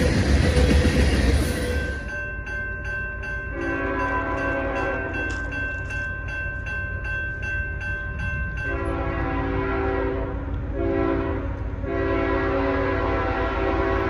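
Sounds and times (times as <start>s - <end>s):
crossing bell ringing: 0.0s - 10.1s
distant locomotive air horn: 3.5s - 5.4s, 8.7s - 14.0s.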